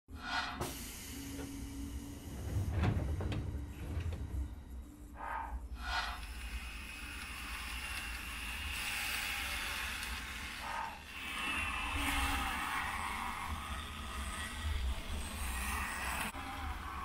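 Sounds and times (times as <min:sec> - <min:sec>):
model train motor whirring: 0:05.8 - 0:16.6.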